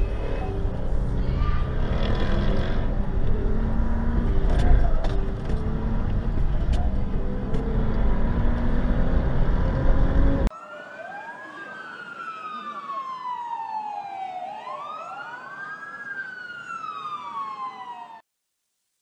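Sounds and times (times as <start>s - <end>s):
car road noise rumble: 0.0s - 10.5s.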